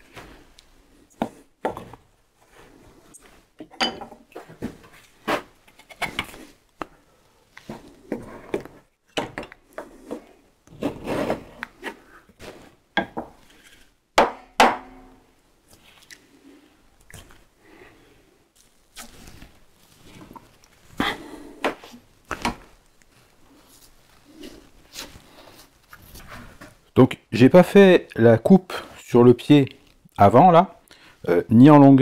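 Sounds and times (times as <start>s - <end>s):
wood rubbing scrape: 9.8s - 12.8s.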